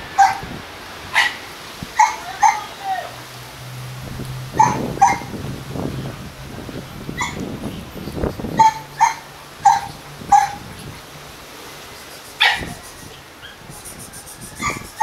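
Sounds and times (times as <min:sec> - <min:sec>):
dog barking: 0:00.2 - 0:00.4, 0:01.1 - 0:01.4, 0:02.0 - 0:02.7, 0:04.6 - 0:05.3, 0:08.6 - 0:10.6, 0:12.4 - 0:12.8.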